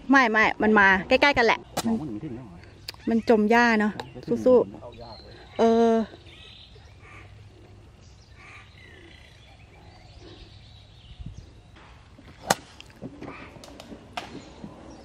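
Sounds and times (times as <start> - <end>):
golf club striking ball: 11.8 - 13.2
golf club swishing: 12.1 - 13.3.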